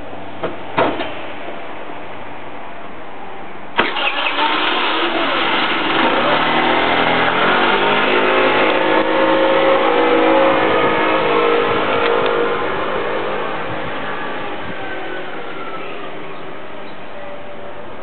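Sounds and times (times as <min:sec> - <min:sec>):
scooter engine starting and revving: 0:03.8 - 0:09.6.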